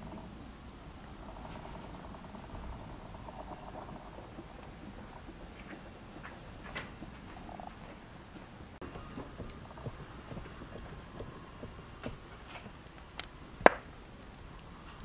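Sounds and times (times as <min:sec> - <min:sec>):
hands patting dough: 0:04.1 - 0:14.1.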